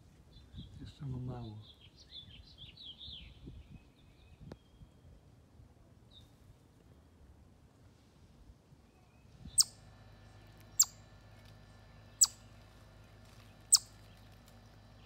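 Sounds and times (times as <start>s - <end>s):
chipmunk chip calls: 9.5s - 9.8s, 10.6s - 11.1s, 12.1s - 12.7s, 13.3s - 14.3s.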